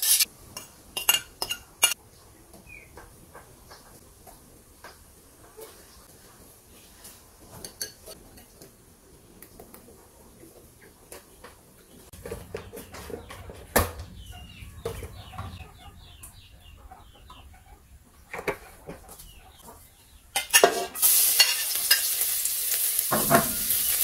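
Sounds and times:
chickens clucking: 0:10.8 - 0:20.9
metal cookware knock: 0:23.1 - 0:23.7.

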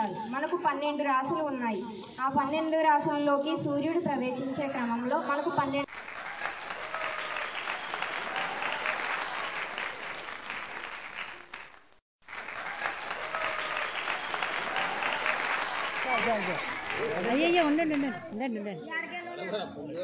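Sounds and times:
crowd clapping: 0:05.9 - 0:18.4.

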